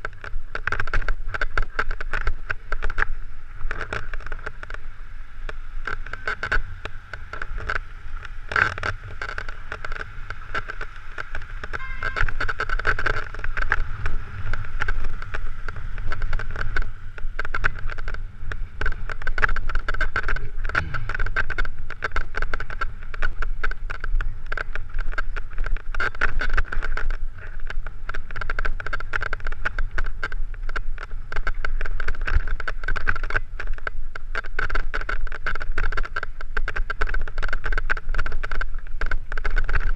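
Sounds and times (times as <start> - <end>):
bike rattling over stony trail: 0.0 - 39.9
wind rumble on microphone: 0.0 - 39.9
sharp knock: 20.7 - 21.8.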